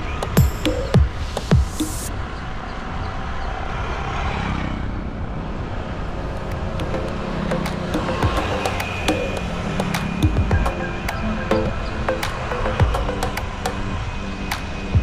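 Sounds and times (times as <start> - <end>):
road and traffic noise: 0.0 - 15.0
background music with a beat: 0.2 - 2.1, 6.8 - 15.0.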